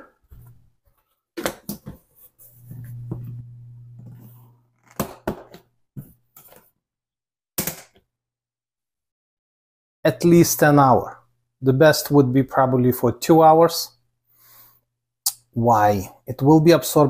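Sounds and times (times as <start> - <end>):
low steady hum: 2.5 - 4.8.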